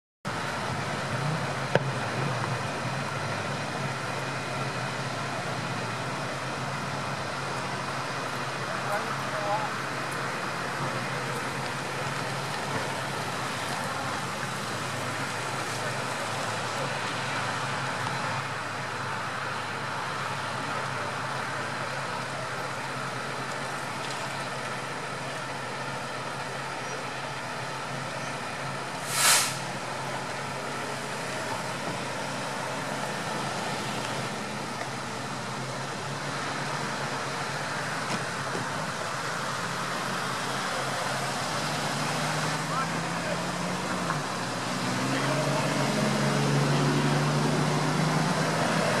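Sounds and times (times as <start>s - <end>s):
low engine hum: 0.3s - 49.0s
road traffic passing: 0.3s - 49.0s
loud hiss: 29.0s - 29.8s.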